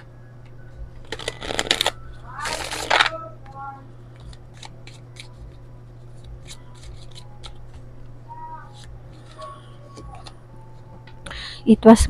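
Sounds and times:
steady low hum: 0.0s - 12.0s
cards being shuffled: 1.0s - 3.2s, 4.2s - 7.9s, 8.6s - 10.4s.

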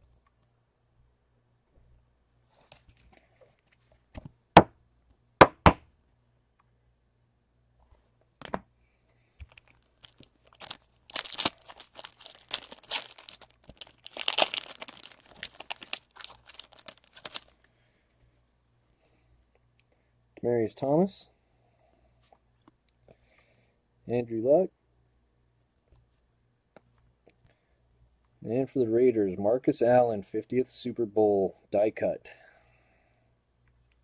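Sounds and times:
wrapper tearing and crinkling: 9.5s - 17.7s.

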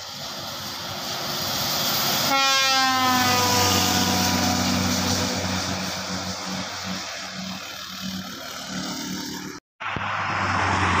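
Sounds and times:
bus passing on wet road: 0.0s - 11.0s
multi-tone air horn: 2.2s - 7.6s.

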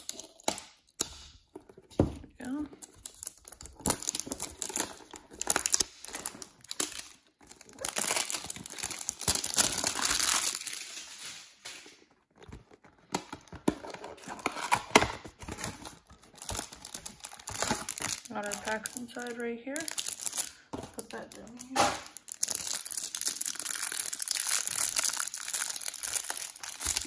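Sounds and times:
plastic wrapping crinkling: 0.0s - 27.0s
cardboard box tearing: 13.4s - 18.2s.

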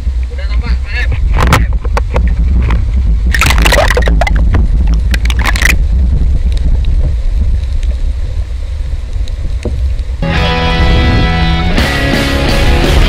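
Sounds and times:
muffled underwater rumble: 0.0s - 11.8s
splashing and bubbling: 2.2s - 10.2s.

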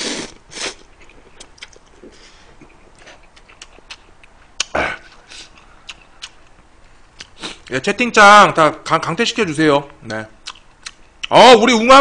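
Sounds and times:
chewing noodles: 0.0s - 6.6s.

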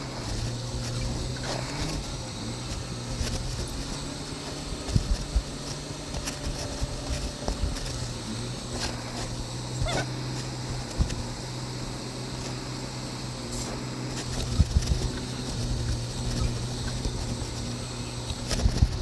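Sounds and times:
truck engine humming: 0.0s - 19.0s.

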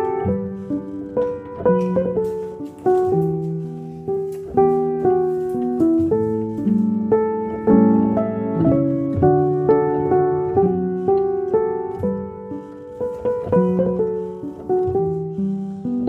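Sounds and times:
calm piano music: 0.0s - 16.0s.

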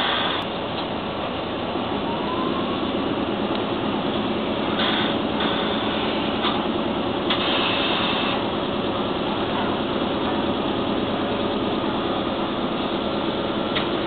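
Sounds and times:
air compressor running: 0.0s - 14.0s
brief high hiss: 7.3s - 8.4s.

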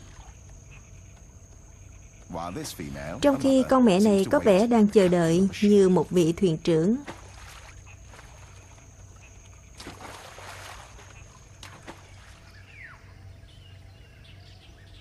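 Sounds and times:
water splashing and lapping: 0.0s - 2.2s, 3.3s - 13.0s
faint high-pitched hum: 0.0s - 15.0s.

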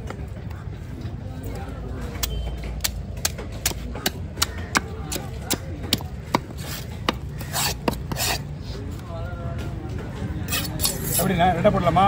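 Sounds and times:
knife scraping fish: 6.6s - 8.5s, 10.5s - 11.3s.

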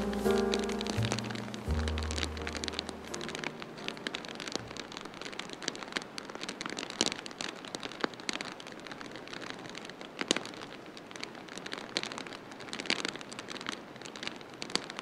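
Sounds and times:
soft background music: 0.0s - 5.2s
heavy rain: 0.0s - 15.0s
sharp ticks and pops: 0.0s - 15.0s.

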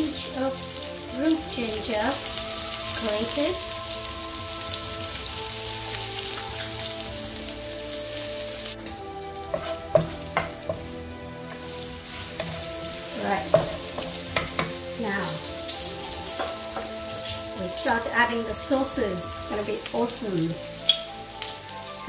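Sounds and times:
food sizzling in hot oil: 0.0s - 22.0s
spatula scraping and tapping pan: 8.8s - 17.9s, 20.8s - 21.2s.

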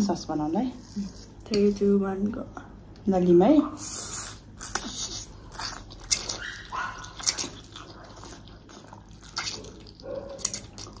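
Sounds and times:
squeaky slurps: 3.8s - 11.0s
wet chewing noises: 3.8s - 11.0s.

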